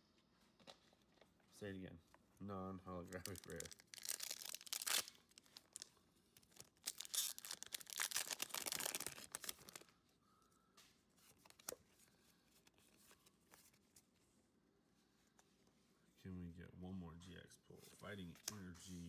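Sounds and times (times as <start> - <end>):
foil wrapper tearing and crinkling: 3.1 - 9.9.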